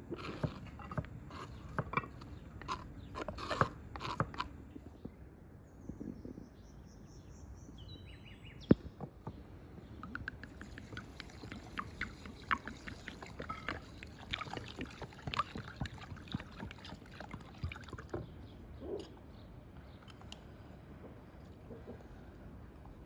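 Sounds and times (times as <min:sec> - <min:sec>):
water pouring and splashing: 0:10.0 - 0:18.4.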